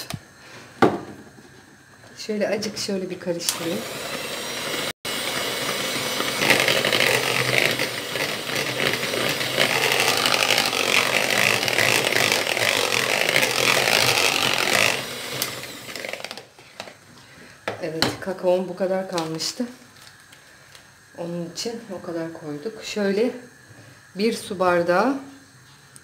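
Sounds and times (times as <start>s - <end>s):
electric hand mixer whirring: 3.3s - 16.5s.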